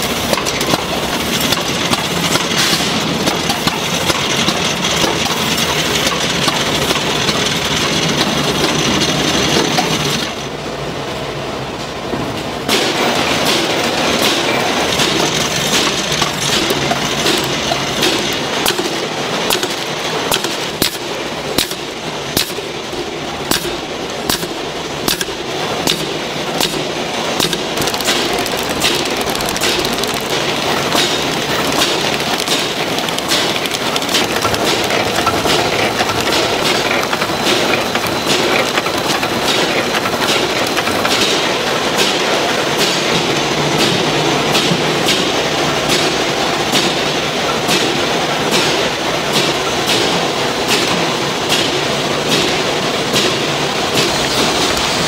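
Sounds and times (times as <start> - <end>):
packaging machinery din: 12.7 - 55.0.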